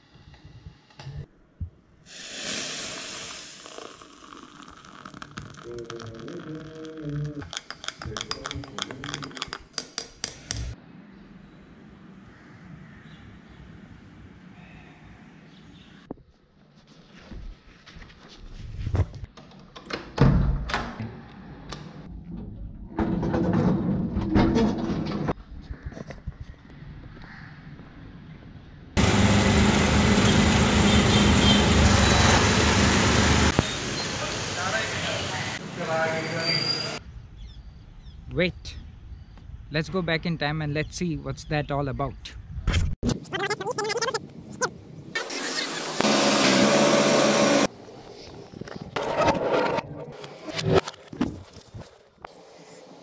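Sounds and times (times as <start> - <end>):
liquid pouring with gurgle: 2.2 - 7.4
metal spoon clinking against glass: 7.5 - 10.8.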